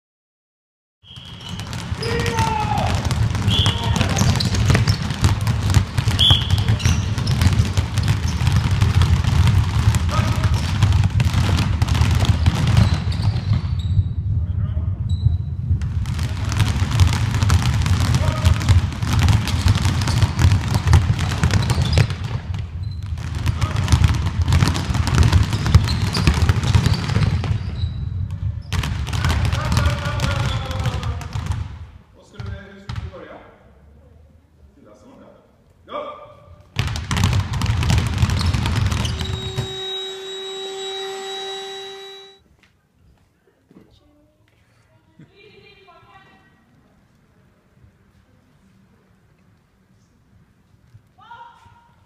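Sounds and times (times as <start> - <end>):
sneaker squeaks: 1.0 - 2.8, 3.4 - 9.0, 12.2 - 14.2, 15.1 - 15.6, 19.4 - 23.2, 25.4 - 28.9, 38.2 - 42.4
basketballs dribbling: 1.0 - 14.2, 15.1 - 33.1, 36.7 - 42.4.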